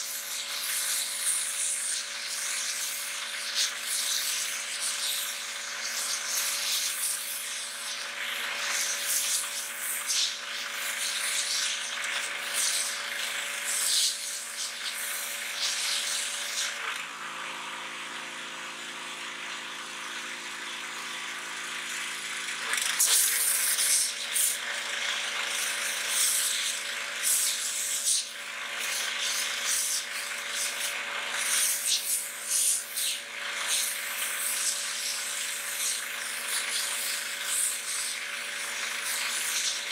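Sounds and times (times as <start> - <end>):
water spray hissing: 0.0 - 8.0, 8.6 - 13.0, 13.7 - 16.8, 23.0 - 24.6, 25.6 - 39.9
pressure washer pump humming: 0.0 - 39.9.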